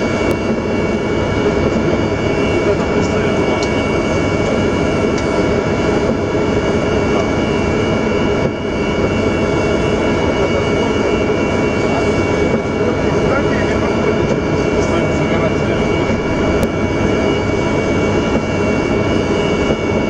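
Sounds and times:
jet engines high whine: 0:00.0 - 0:20.0
loud rushing noise: 0:15.4 - 0:19.3.

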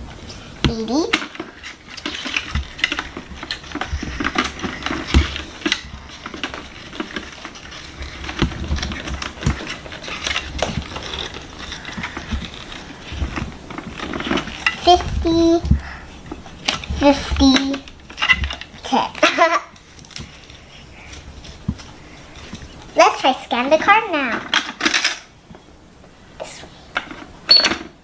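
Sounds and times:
paper money rustling: 0:01.5 - 0:15.1.

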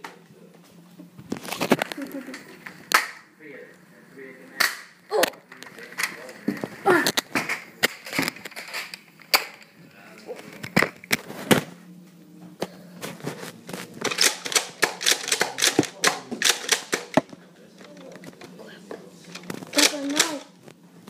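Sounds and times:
toy blasters firing foam darts: 0:14.0 - 0:17.3, 0:19.7 - 0:20.5.

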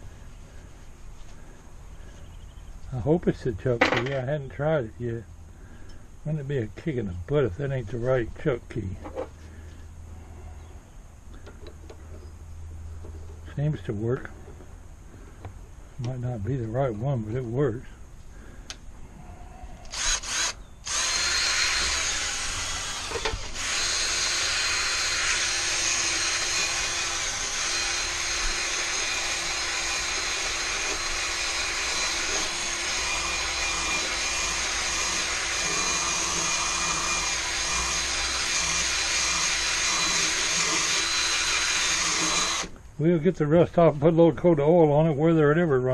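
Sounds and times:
drill wire brush scrubbing metal: 0:19.9 - 0:42.7.

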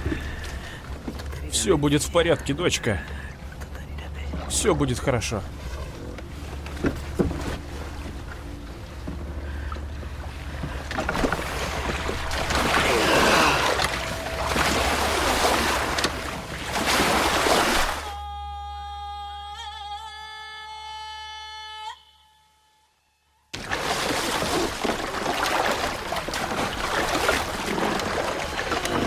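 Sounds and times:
sea waves: 0:00.0 - 0:18.2, 0:23.6 - 0:29.0
low steady rumble: 0:00.0 - 0:21.7.

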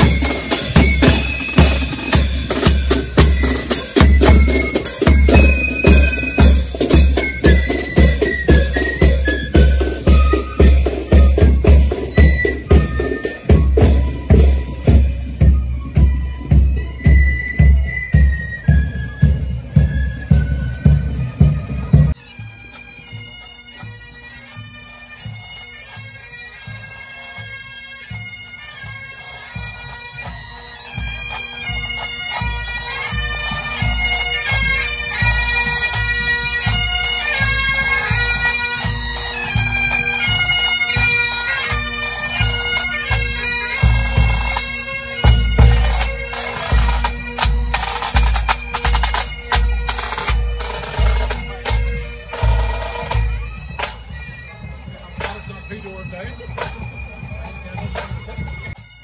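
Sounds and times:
bagpipes playing with drones: 0:00.0 - 0:59.0.

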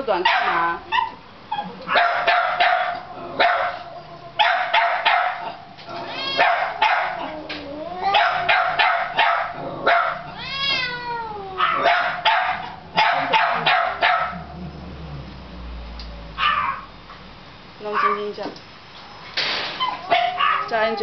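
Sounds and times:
dog barking: 0:00.2 - 0:01.2, 0:01.9 - 0:05.6, 0:06.4 - 0:07.3, 0:08.1 - 0:10.3, 0:11.6 - 0:14.5, 0:16.4 - 0:16.9, 0:17.9 - 0:18.3, 0:19.8 - 0:20.9
cat meowing: 0:05.9 - 0:08.5, 0:10.3 - 0:11.9.

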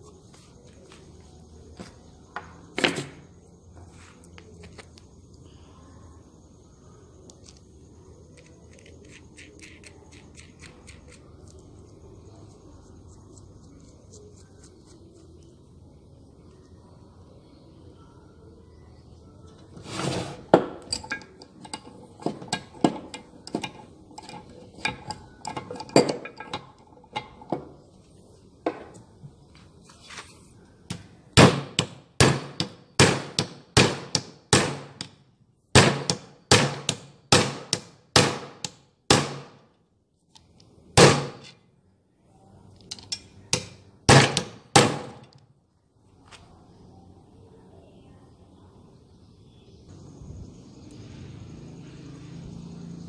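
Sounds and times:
hammer striking a bolt: 0:30.9 - 0:35.2, 0:35.8 - 0:39.6, 0:43.6 - 0:45.4.

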